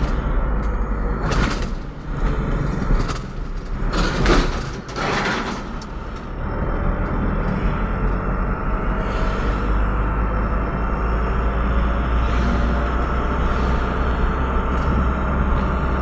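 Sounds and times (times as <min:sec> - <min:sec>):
vehicle road rumble: 0:00.0 - 0:16.0
oncoming vehicles passing: 0:06.1 - 0:16.0.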